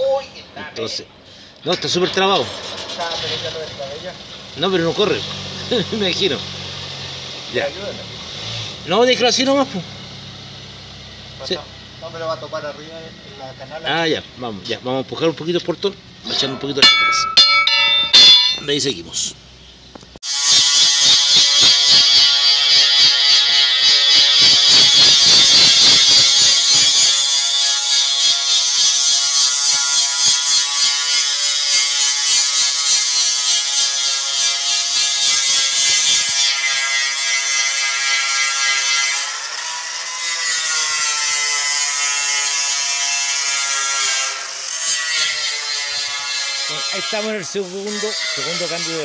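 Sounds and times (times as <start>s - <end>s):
angle grinder grinding steel: 16.2s - 18.8s, 20.2s - 49.0s.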